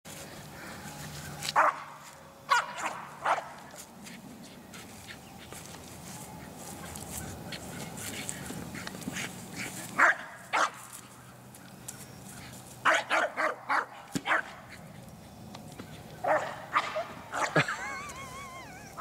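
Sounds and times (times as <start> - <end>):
dog barking: 1.6 - 1.9, 2.5 - 3.6, 10.0 - 10.8, 12.8 - 14.6, 16.2 - 17.6.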